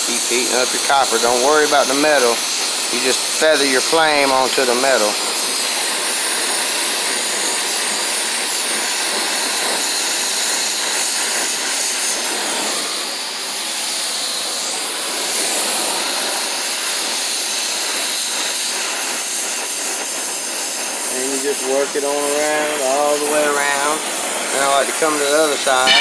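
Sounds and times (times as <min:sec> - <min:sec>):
torch flame hissing: 0:00.0 - 0:26.0.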